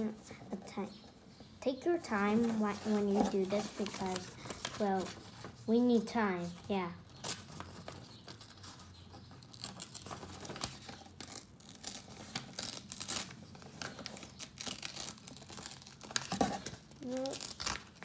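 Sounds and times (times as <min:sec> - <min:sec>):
paper crinkling: 0:02.1 - 0:18.0
paper tearing: 0:02.4 - 0:05.2, 0:09.4 - 0:16.4, 0:17.0 - 0:18.0.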